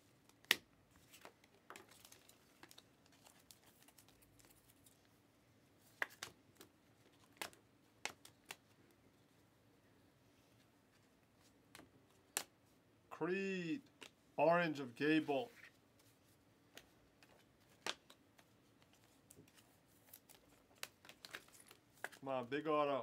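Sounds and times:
trading cards clicking and snapping: 0.3 - 4.6, 6.0 - 8.6, 16.7 - 22.2.

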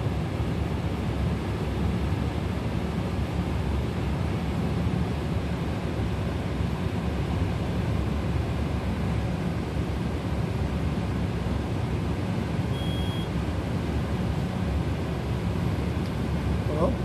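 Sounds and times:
short high beep: 12.7 - 13.3.

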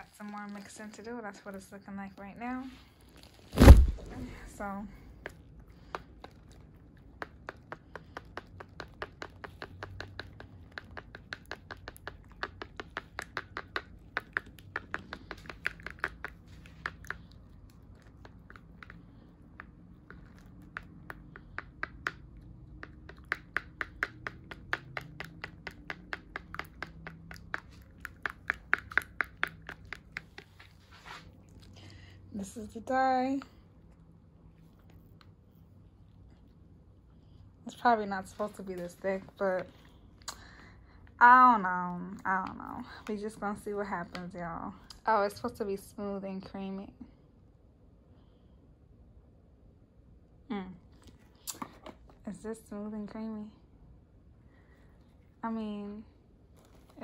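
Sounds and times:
utensil clicking against bowl: 7.2 - 17.4, 19.6 - 30.5.

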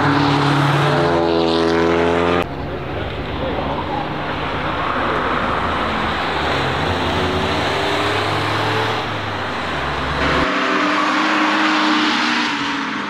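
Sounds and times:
race car engines passing: 0.0 - 13.0
road and tyre noise: 0.0 - 13.0.

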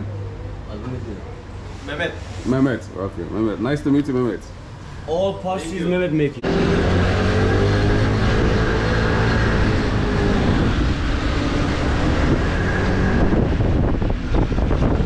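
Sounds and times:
wind noise on microphone: 7.2 - 15.0.

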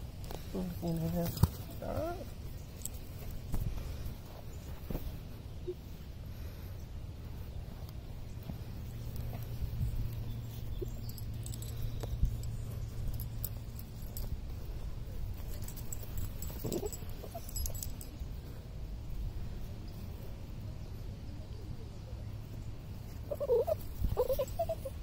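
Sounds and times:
metal leash clip jingling: 10.5 - 18.3.

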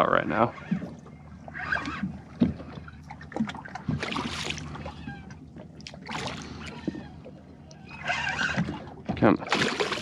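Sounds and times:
low steady hum: 0.0 - 10.0
fish splashing in water: 1.6 - 5.1, 8.0 - 10.0.

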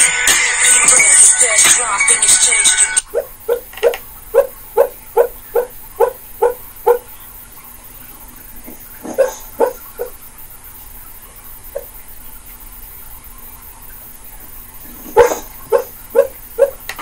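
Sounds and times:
dog woofing in sleep: 3.0 - 7.2, 8.7 - 10.3, 11.7 - 12.0, 14.8 - 16.9.

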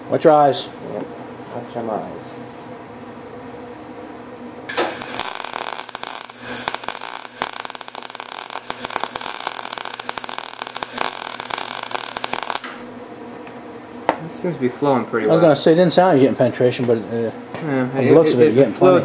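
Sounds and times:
faint steady hum: 0.0 - 18.6
welding arc crackling: 4.7 - 12.9.

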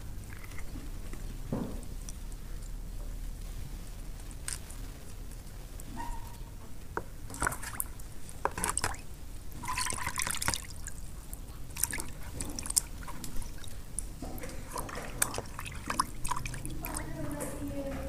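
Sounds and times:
water sloshing in a plastic basin: 5.9 - 18.0.

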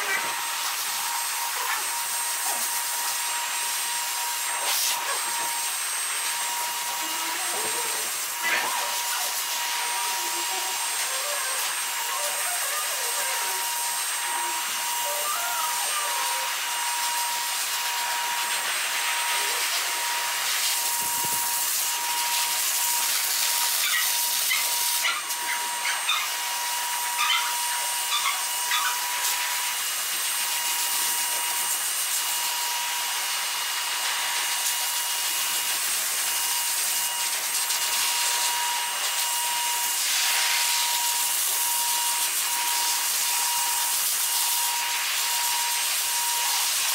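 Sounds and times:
blower motor whine: 0.0 - 46.9
dryer blowing air hiss: 0.0 - 46.9.

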